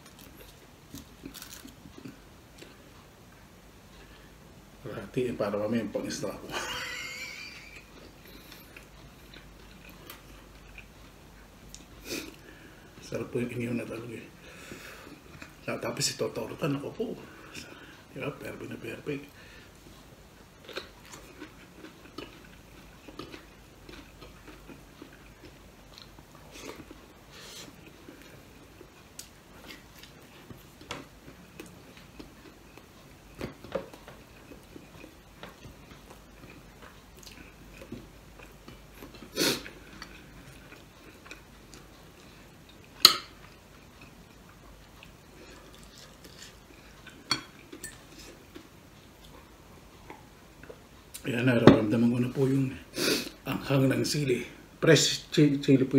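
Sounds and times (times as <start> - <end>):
person chewing food: 0.0 - 4.3, 6.6 - 13.0, 14.4 - 15.6, 19.3 - 51.3.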